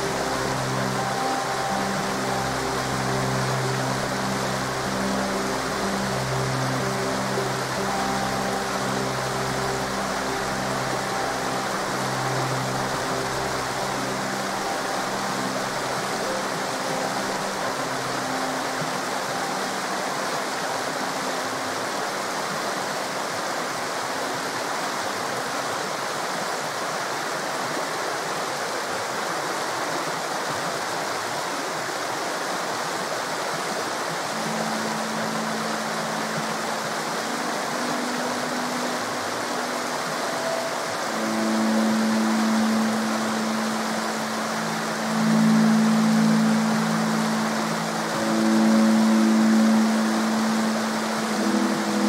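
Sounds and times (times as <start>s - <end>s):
river water rushing: 0.0s - 52.0s
soft low music notes: 0.0s - 52.0s.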